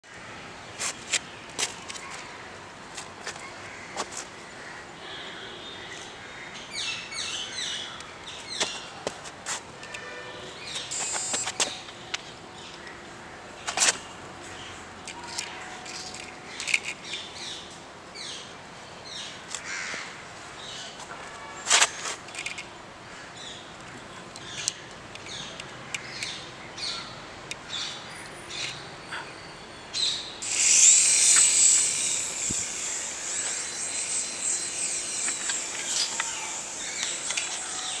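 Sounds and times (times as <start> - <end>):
toy helicopter motor whine: 10.8 - 11.8, 30.4 - 38.0.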